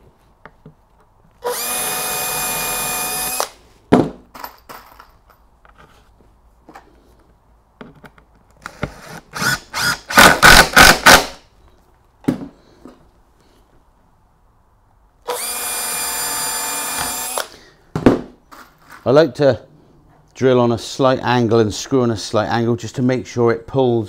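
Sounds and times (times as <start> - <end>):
cordless drill whining: 1.4 - 3.6, 8.7 - 10.5, 15.3 - 17.6.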